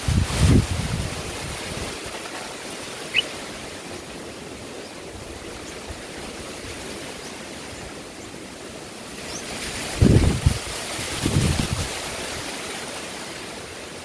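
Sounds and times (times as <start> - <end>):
outdoor hiss: 0.0 - 14.0
bird chirp: 3.1 - 4.0.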